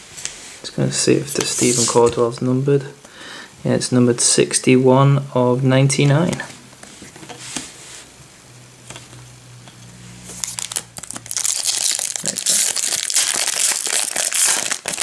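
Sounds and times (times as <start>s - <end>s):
foil wrapper crinkling: 10.4s - 15.0s.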